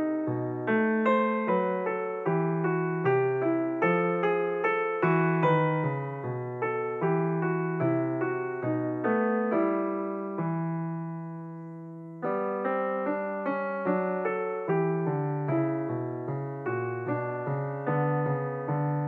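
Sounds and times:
solo piano music: 0:00.0 - 0:19.0.

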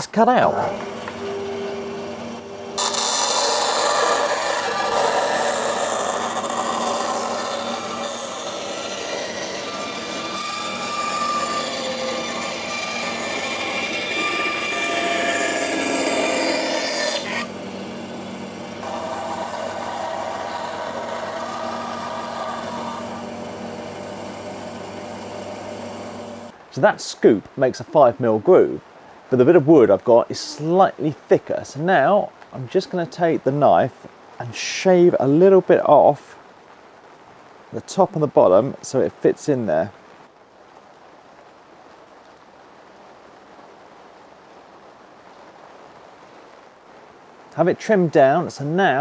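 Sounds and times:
bandsaw cutting wood: 0:00.4 - 0:26.5.

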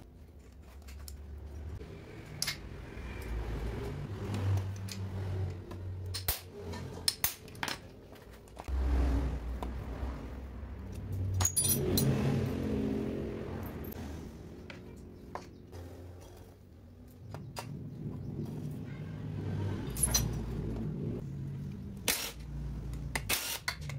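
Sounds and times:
tools clinking on metal: 0:10.9 - 0:12.4, 0:19.8 - 0:20.6.

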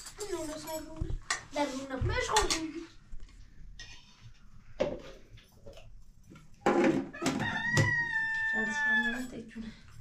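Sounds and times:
rooster crowing: 0:07.1 - 0:09.4.

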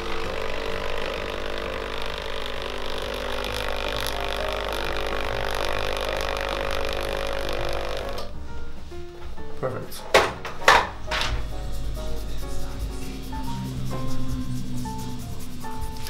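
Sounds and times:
stencil printer motor running: 0:00.0 - 0:08.3.

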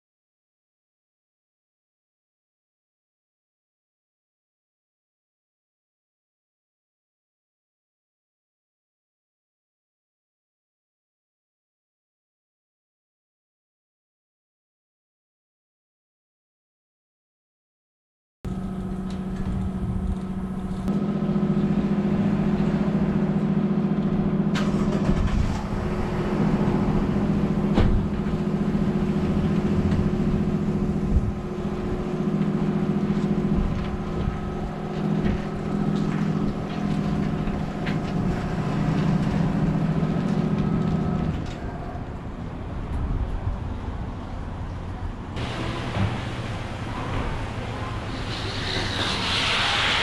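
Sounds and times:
motor droning hum: 0:18.5 - 0:50.0.

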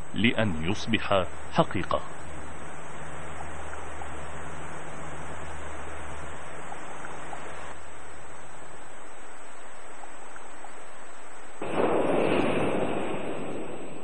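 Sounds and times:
low steady hum: 0:00.0 - 0:14.0
water rushing from propeller: 0:00.9 - 0:11.6.

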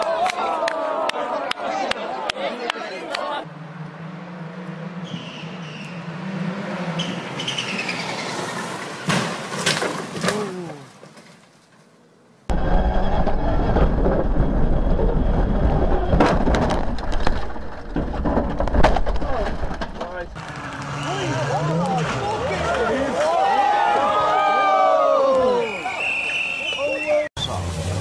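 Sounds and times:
car engine revving: 0:03.4 - 0:08.8
engine and road noise rumble: 0:03.4 - 0:11.5, 0:12.5 - 0:23.4, 0:27.4 - 0:28.0
car crashing into logs: 0:09.0 - 0:11.4, 0:12.6 - 0:20.8.

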